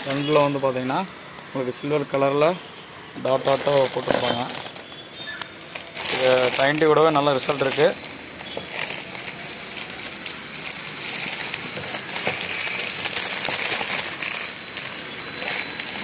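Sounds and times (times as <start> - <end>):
plastic wrapping crinkling: 0.0 - 1.9, 3.2 - 16.0.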